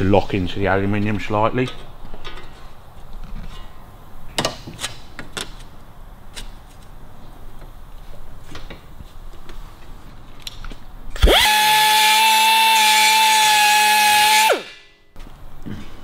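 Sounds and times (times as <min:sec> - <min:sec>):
rotary tool whining against metal: 0:11.2 - 0:14.9.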